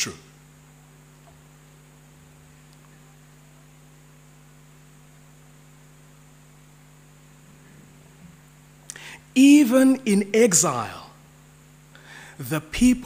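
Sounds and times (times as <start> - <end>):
electrical mains hum: 0.0 - 13.0
low microphone hiss: 0.0 - 13.0.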